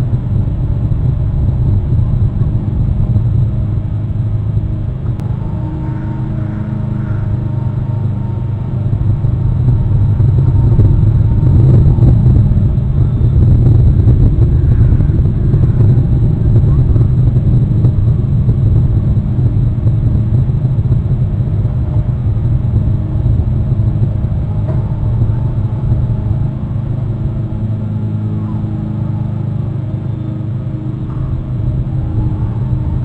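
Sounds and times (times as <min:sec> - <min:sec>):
faint droning hum: 0:00.0 - 0:33.0
low rumble: 0:00.0 - 0:33.0.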